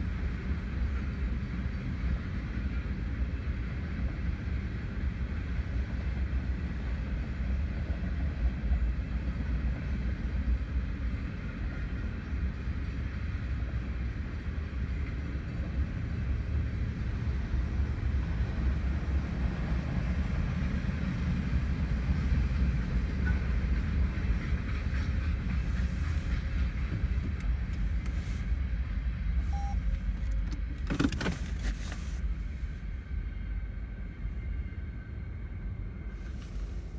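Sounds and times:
freight train rumbling past: 0:00.0 - 0:36.9.

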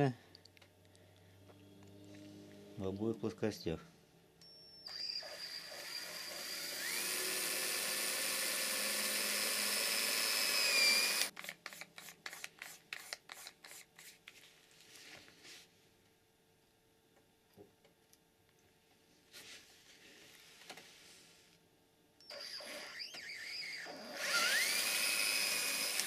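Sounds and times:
electric drill whining: 0:04.4 - 0:11.3, 0:22.2 - 0:26.0.

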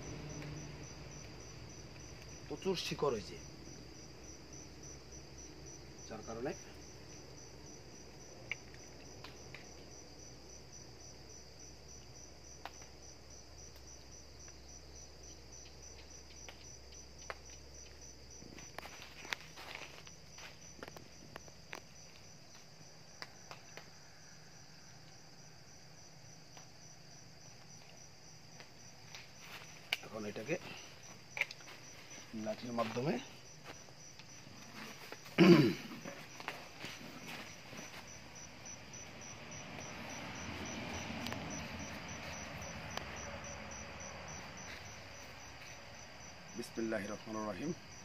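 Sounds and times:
crickets chirping: 0:00.0 - 0:48.0
hands rustling seedlings: 0:28.8 - 0:46.2.

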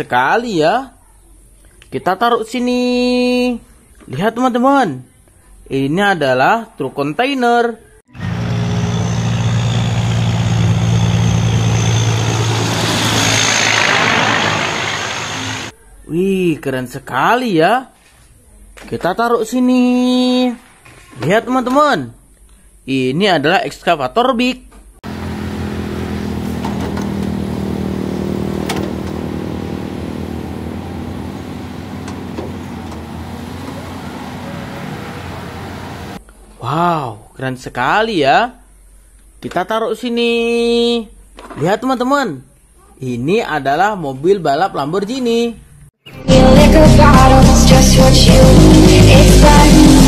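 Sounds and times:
diesel truck engine droning: 0:08.1 - 0:15.7, 0:25.0 - 0:36.2
truck passing close by: 0:08.1 - 0:15.7, 0:25.0 - 0:36.2
road noise: 0:08.1 - 0:15.8, 0:25.0 - 0:36.2.

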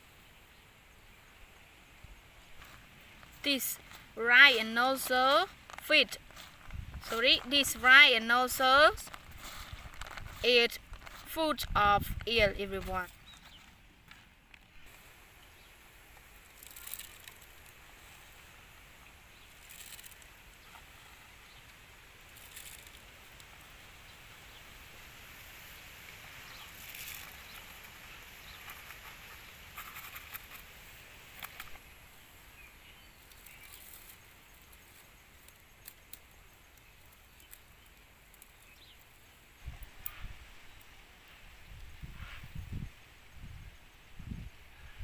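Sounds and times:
rustling and crackling of bamboo trap: 0:02.5 - 0:15.2, 0:16.0 - 0:23.7, 0:25.4 - 0:32.0, 0:33.1 - 0:40.8.

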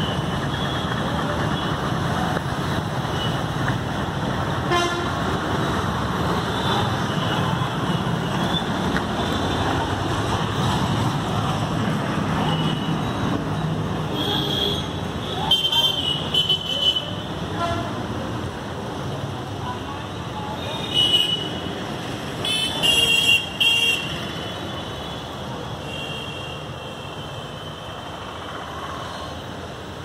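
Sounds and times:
road traffic noise: 0:00.0 - 0:30.0
vehicle horns tooting: 0:04.7 - 0:05.2.

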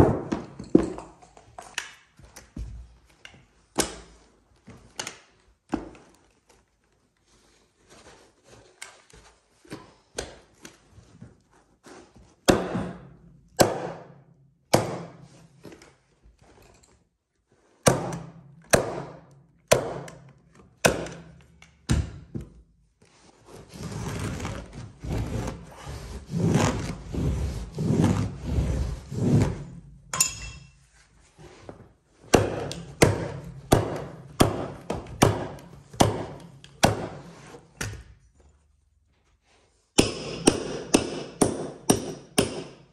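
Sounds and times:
rubbing noise: 0:23.5 - 0:29.8.

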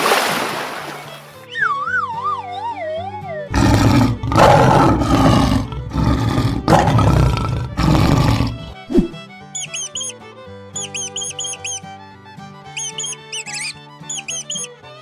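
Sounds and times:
background music: 0:01.1 - 0:15.0
lion roaring: 0:03.5 - 0:09.2.

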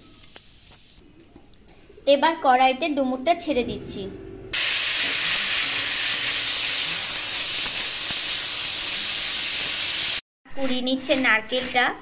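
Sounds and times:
figs sizzling in hot oil: 0:04.6 - 0:10.2.

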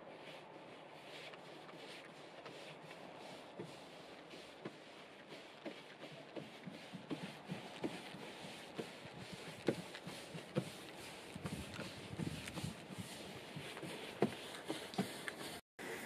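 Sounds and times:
paintbrush scraping along wood: 0:00.0 - 0:16.0
brush knocking against boards: 0:04.6 - 0:15.6.

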